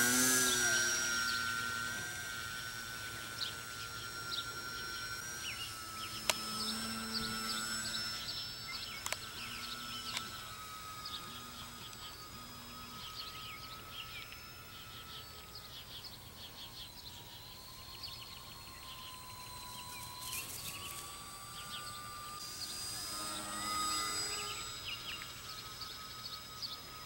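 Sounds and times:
birds chirping: 0:00.0 - 0:27.0
electric model plane motor whining: 0:00.0 - 0:27.0.

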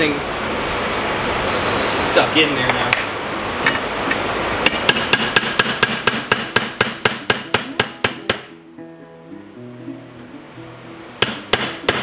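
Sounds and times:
hammer tapping steel: 0:04.6 - 0:08.6, 0:11.2 - 0:12.0.

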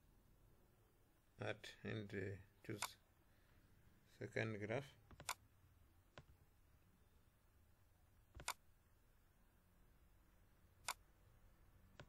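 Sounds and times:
computer mouse clicks: 0:02.8 - 0:03.0, 0:05.1 - 0:05.4, 0:08.3 - 0:08.6, 0:10.8 - 0:11.0.

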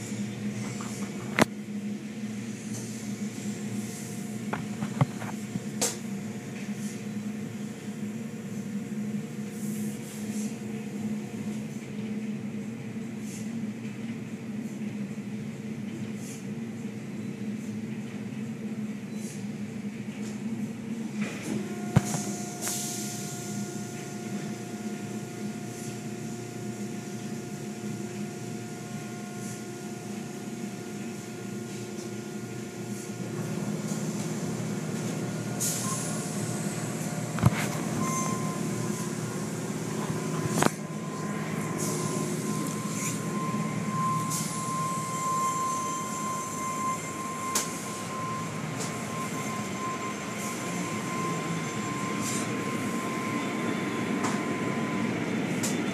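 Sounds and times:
car wash machinery running: 0:00.0 - 0:17.2, 0:17.8 - 0:55.9
high whine: 0:35.8 - 0:55.9.

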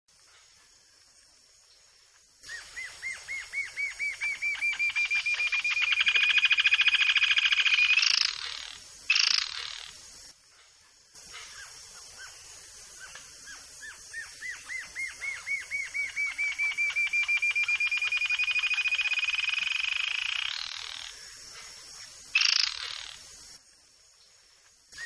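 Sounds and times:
bird singing high trill: 0:02.5 - 0:09.9, 0:14.2 - 0:21.1.

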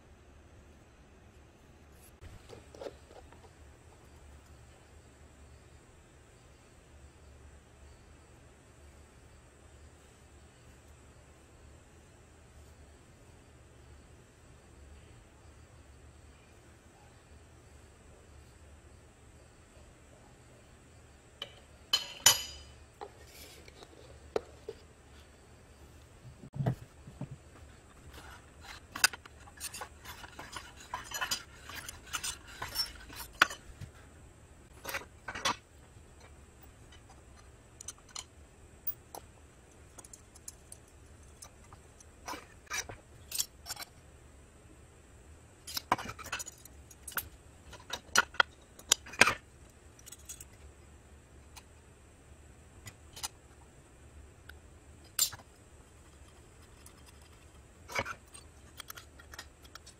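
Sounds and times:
metallic clinks and knocks: 0:21.4 - 0:22.8.

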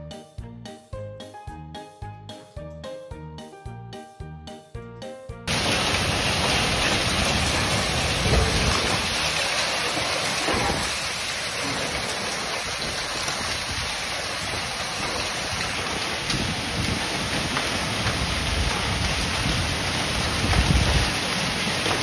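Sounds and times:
heavy rain on pavement: 0:05.5 - 0:22.0.

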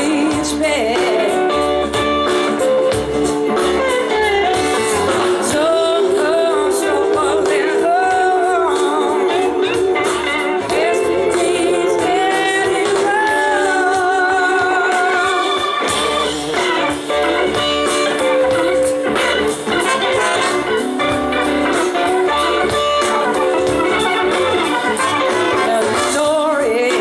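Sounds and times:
woman singing: 0:00.0 - 0:01.9, 0:04.1 - 0:16.3, 0:25.2 - 0:27.0
live blues-rock band: 0:00.0 - 0:27.0.

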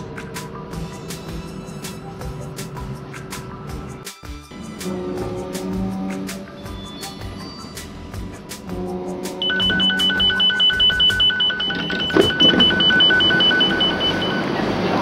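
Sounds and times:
rapid high beeping: 0:09.4 - 0:14.6.

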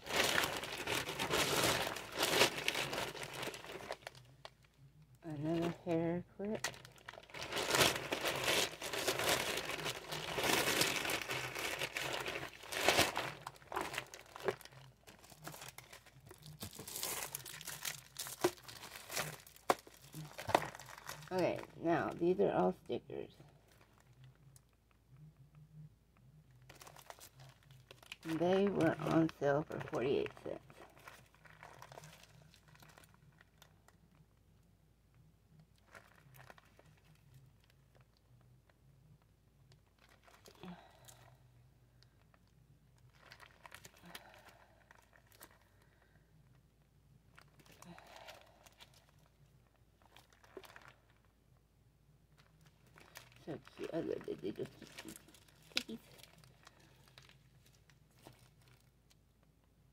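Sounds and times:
plastic bags crinkling: 0:00.0 - 0:04.7, 0:05.3 - 0:22.3, 0:26.6 - 0:33.9, 0:35.8 - 0:38.1, 0:39.8 - 0:41.4, 0:42.0 - 0:46.1, 0:47.3 - 0:49.4, 0:50.0 - 0:51.3, 0:52.4 - 0:59.0.

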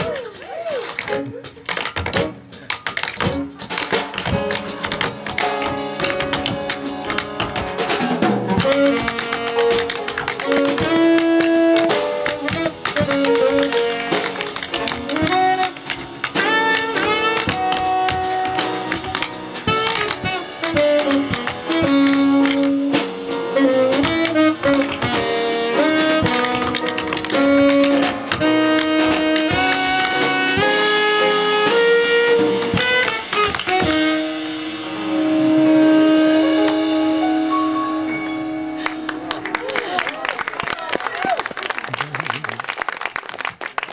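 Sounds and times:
drums: 0:00.0 - 0:41.6
piano: 0:00.0 - 0:43.9
tap shoes on wooden floor: 0:00.8 - 0:07.8, 0:08.5 - 0:22.8, 0:23.9 - 0:31.0
tenor saxophone melody: 0:08.6 - 0:39.6.

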